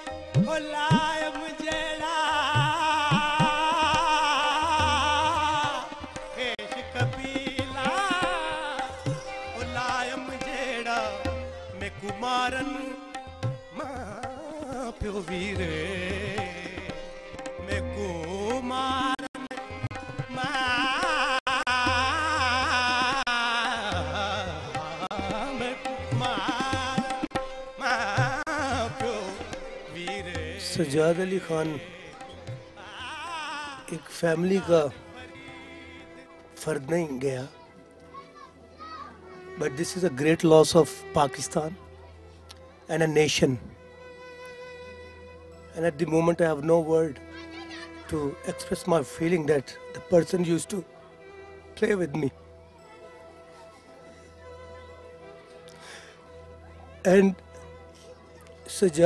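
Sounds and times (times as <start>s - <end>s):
man singing ornamented runs: 0.0s - 37.4s.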